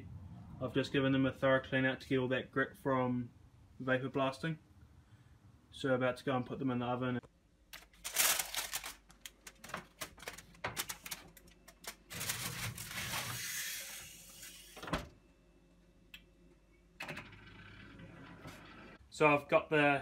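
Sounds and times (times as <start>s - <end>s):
aluminium foil crinkling: 7.8s - 14.7s.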